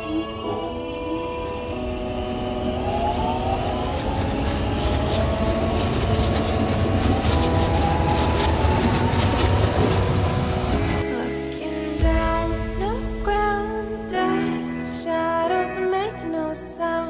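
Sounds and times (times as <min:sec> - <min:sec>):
electric train rumble and whine: 0:00.0 - 0:16.8
train wheels clicking and rattling: 0:02.7 - 0:11.0.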